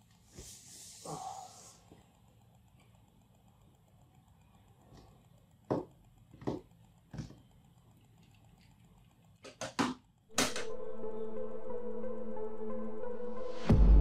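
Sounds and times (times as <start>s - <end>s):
sharp taps: 4.9s - 7.5s
electronic film-score music: 10.3s - 14.0s.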